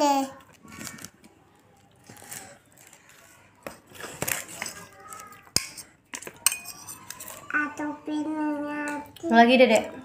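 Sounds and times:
spoon clinking on glass: 5.6 - 7.3
metal spoon scraping glass: 5.6 - 7.4.

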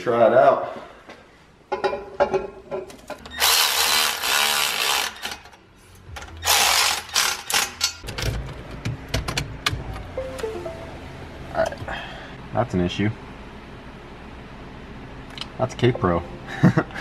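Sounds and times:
cordless electric ratchet: 3.4 - 5.4, 6.4 - 7.9.

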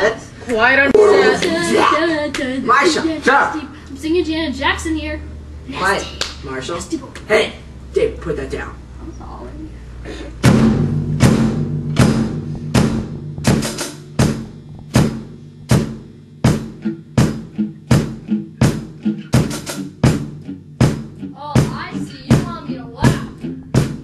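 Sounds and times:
electric guitar ringing low: 7.6 - 19.4, 20.3 - 23.8
bass drum and snare beat: 10.4 - 24.0.

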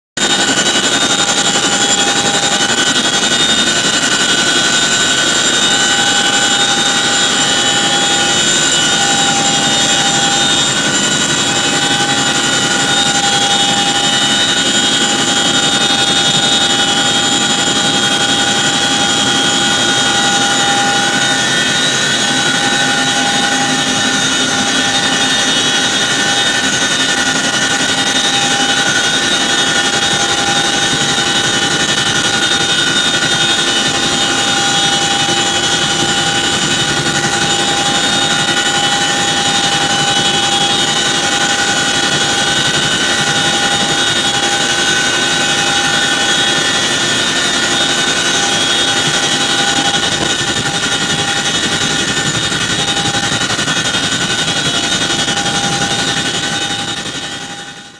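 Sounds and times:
constant rushing noise: 0.2 - 57.9
machine drone with whining tones: 0.2 - 57.9.

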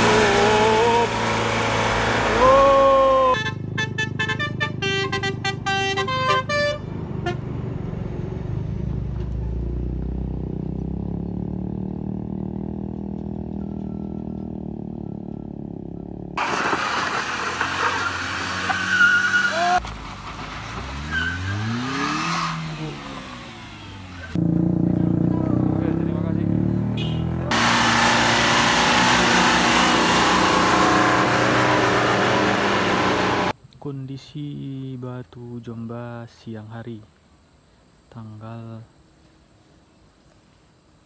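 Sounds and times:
engine revving: 0.0 - 3.8, 7.0 - 19.8, 20.5 - 33.5
multi-tone truck horn blaring: 3.3 - 7.6, 26.9 - 27.6
diesel truck engine running: 22.7 - 33.5.

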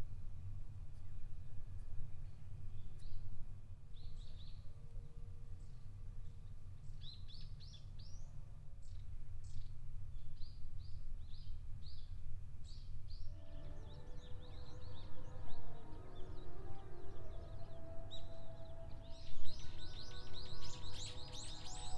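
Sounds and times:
songbirds chirping: 1.0 - 21.9
sustained middle tones: 13.3 - 21.9.

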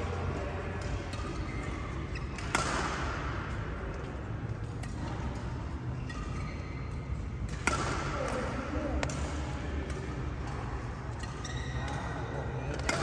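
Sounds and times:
steady background hum: 0.0 - 13.0
racket striking shuttlecock: 2.3 - 3.6, 7.4 - 9.3, 12.7 - 13.0.

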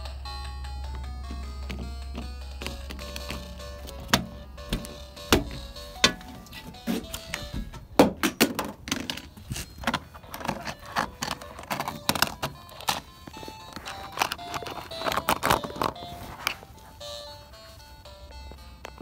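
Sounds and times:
background music: 0.0 - 19.0
plastic console clattering on floor: 1.6 - 16.6.

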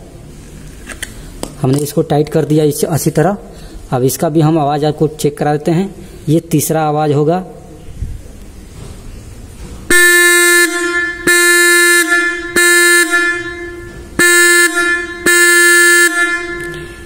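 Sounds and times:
buzzy electric horn blasts: 9.9 - 17.0.

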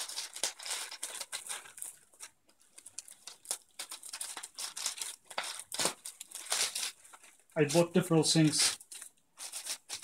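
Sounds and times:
crackles and clicks: 0.0 - 7.8
plastic bag crinkling and rustling: 0.0 - 10.0.

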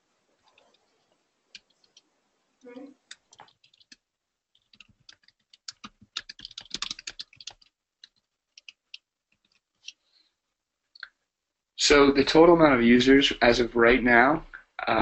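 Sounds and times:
computer keyboard typing: 1.5 - 2.1, 2.7 - 10.0.

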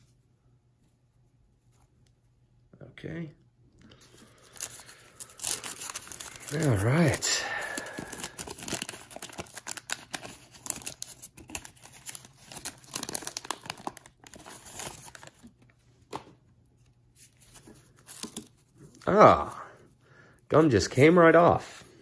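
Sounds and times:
waxed paper tearing and crinkling: 4.3 - 15.5.

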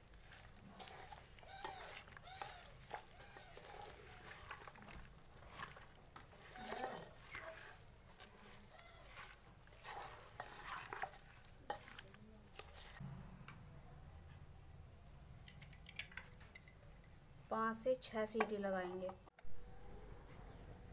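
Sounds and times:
spoon mixing wet food: 0.0 - 13.0.

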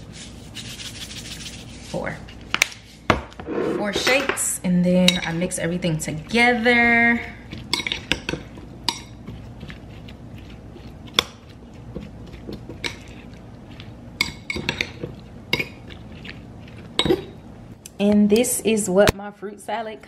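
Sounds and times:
fork clinking against ceramic bowl: 7.7 - 9.2.

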